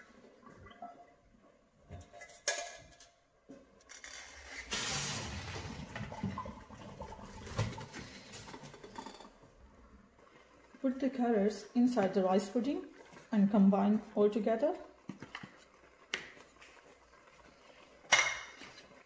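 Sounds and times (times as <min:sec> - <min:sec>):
water splashing into sink: 0:04.7 - 0:09.0.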